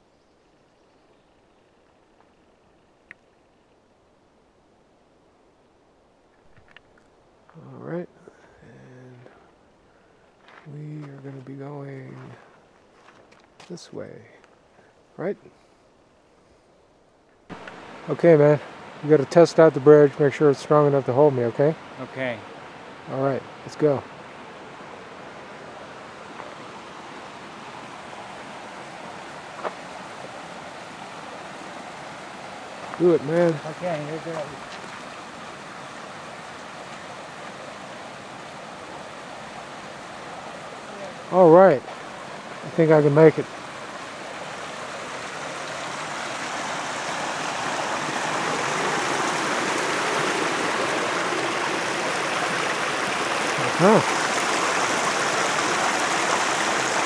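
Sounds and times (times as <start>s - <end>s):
creek water rushing: 17.5s - 57.0s
stream flowing over rocks: 17.5s - 57.0s.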